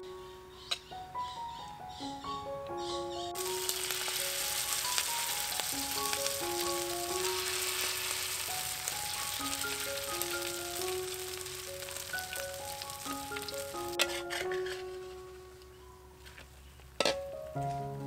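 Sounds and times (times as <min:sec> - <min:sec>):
hot oil sizzling in a wok: 0:03.4 - 0:14.4.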